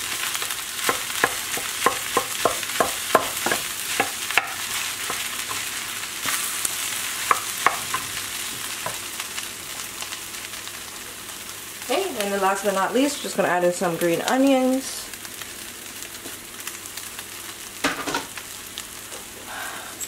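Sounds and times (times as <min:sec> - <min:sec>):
fried rice sizzling in a pan: 0:00.0 - 0:20.0
spatula knocking against pan: 0:00.9 - 0:05.3, 0:07.3 - 0:08.0.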